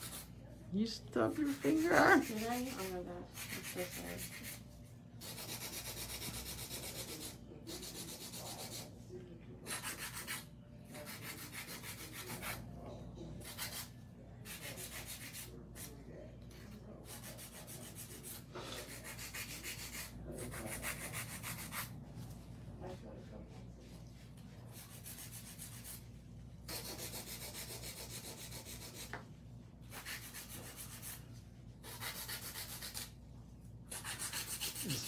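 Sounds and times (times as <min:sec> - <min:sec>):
nail file rasping on nails: 0:00.0 - 0:00.3, 0:01.3 - 0:04.6, 0:05.2 - 0:08.9, 0:09.7 - 0:12.7, 0:13.4 - 0:15.9, 0:16.6 - 0:21.9, 0:24.7 - 0:26.0, 0:26.7 - 0:29.2, 0:29.9 - 0:31.2, 0:31.8 - 0:33.2, 0:33.9 - 0:35.0.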